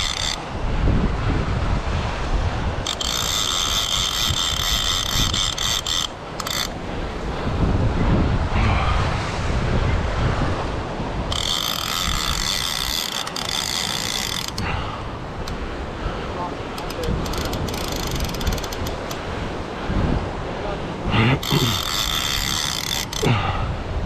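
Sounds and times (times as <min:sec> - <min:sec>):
fishing reel ratchet buzzing: 0:00.0 - 0:00.4, 0:02.8 - 0:06.8, 0:11.3 - 0:14.7, 0:16.8 - 0:19.2, 0:21.4 - 0:23.3
wind rumbling on microphone: 0:00.0 - 0:24.0.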